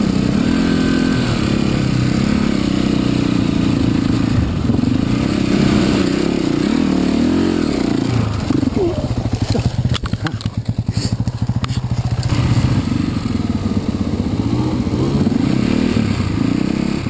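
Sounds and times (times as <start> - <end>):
dirt bike engines revving: 0.0 - 17.0
engine clatters: 3.6 - 15.4.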